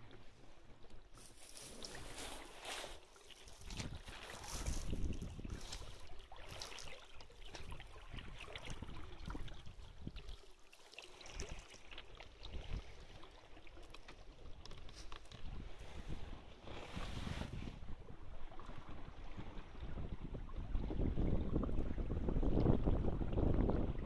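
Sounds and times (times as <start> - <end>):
water lapping against hull: 0.0 - 24.0
wind buffeting microphone: 3.6 - 6.2, 15.4 - 24.0.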